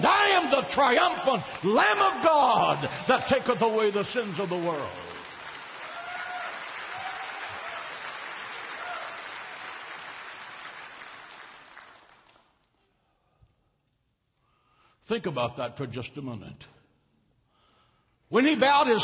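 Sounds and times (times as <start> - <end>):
congregation applauding: 0.0 - 12.8.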